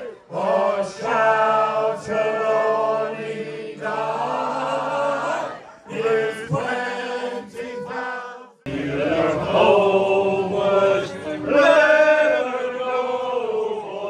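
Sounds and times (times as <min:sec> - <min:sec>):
group singing unaccompanied: 0:00.0 - 0:14.0.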